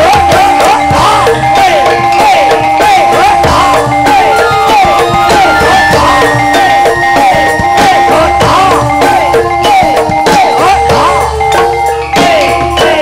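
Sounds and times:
hand drums beating: 0.0 - 13.0
steady high tone: 1.2 - 9.7
wavering melody with pitch slides: 3.7 - 9.6.

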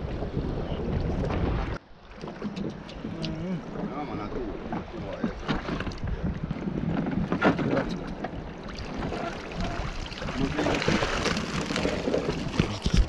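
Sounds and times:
wind on microphone: 0.0 - 13.0
water splashing and dripping: 7.8 - 13.0.

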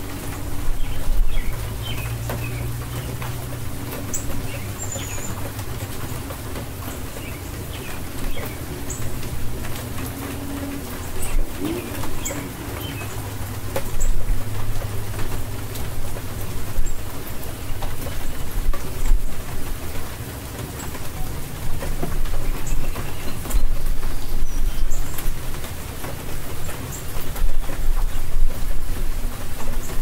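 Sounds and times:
birds chirping: 0.0 - 28.3
steady rainfall: 0.0 - 30.0
dove cooing: 2.2 - 16.0.

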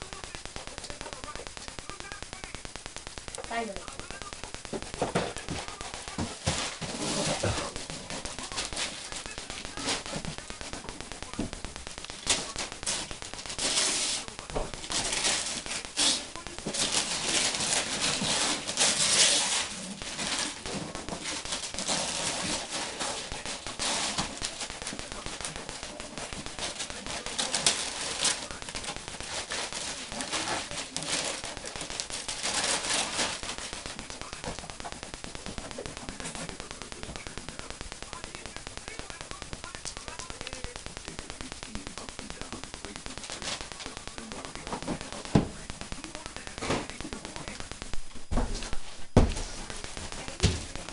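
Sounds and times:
wrapping paper tearing and crumpling: 12.1 - 34.0.

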